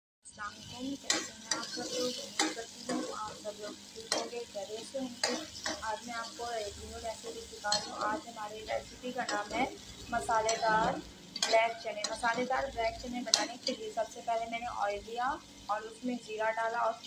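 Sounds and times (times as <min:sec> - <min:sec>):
onions sizzling in oil: 0:00.3 - 0:17.0
spoon scraping a pan: 0:00.9 - 0:14.0.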